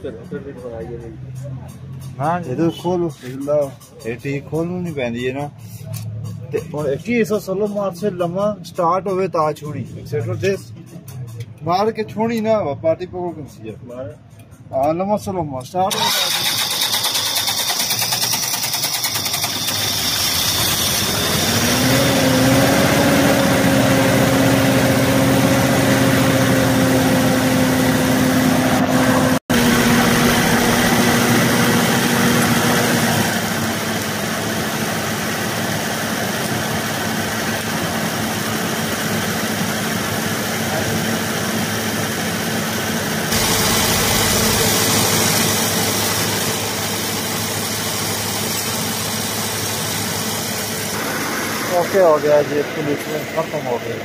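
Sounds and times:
tractor diesel engine idling: 15.9 - 21.8, 23.1 - 54.0.

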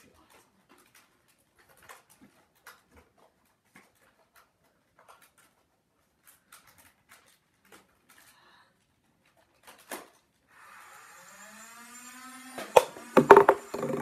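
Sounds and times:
faint clicks and rustles: 0.0 - 10.5.

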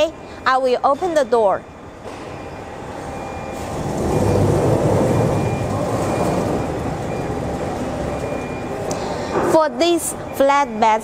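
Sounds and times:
sliding doors rumbling on rails: 3.6 - 8.2.

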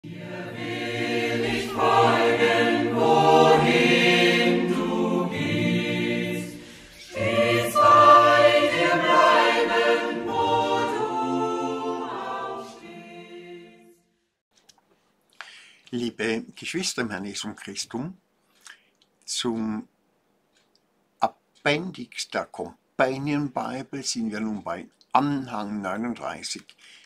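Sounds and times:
choir singing: 0.0 - 14.1.

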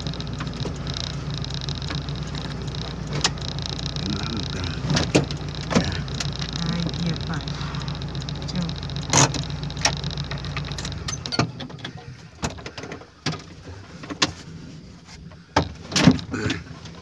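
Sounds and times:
engine idling: 0.0 - 17.0
clicks and knocks in cab: 4.8 - 6.6, 9.0 - 14.6, 15.2 - 17.0.

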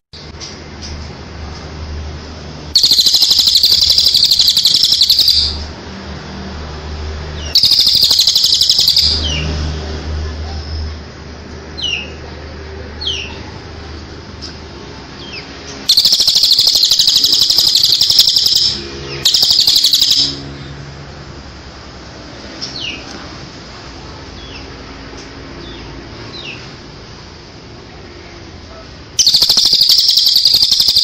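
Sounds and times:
songbirds chirping and trilling: 2.8 - 5.7, 7.2 - 9.6, 11.7 - 20.9, 22.4 - 26.8, 29.2 - 31.0.

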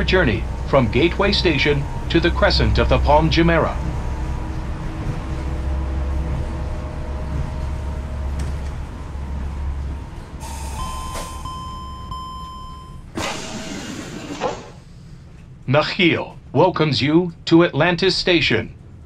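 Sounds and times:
monorail train rumble: 0.0 - 19.0
doors sliding open: 0.2 - 15.3
electronic door chime: 10.4 - 13.1.

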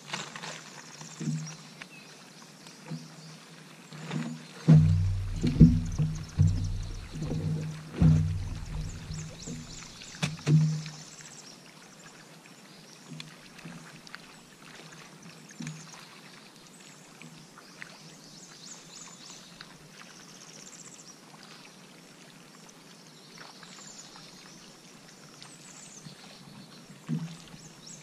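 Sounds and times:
birds chirping and trilling: 4.0 - 10.6
soft thumps: 4.0 - 11.0.

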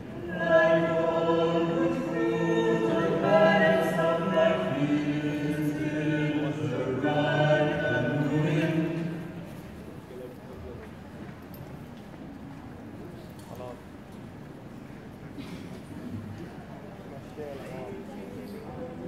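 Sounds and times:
choir singing a cappella: 0.0 - 9.5.

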